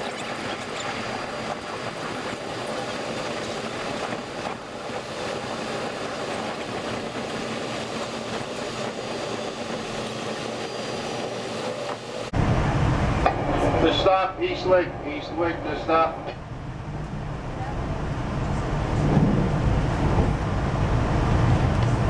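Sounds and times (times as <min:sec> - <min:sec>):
sped-up train running noise: 0:00.0 - 0:22.0
train running noise: 0:00.0 - 0:22.0.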